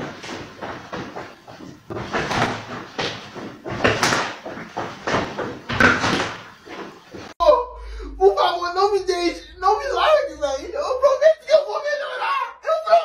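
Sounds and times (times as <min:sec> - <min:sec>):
feet stomping on tiled floor: 0:00.0 - 0:07.4.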